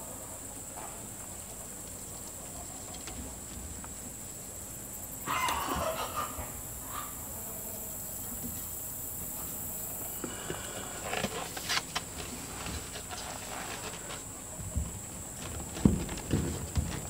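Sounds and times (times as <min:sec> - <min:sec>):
plastic pipe knocking and scraping: 0:11.1 - 0:17.0.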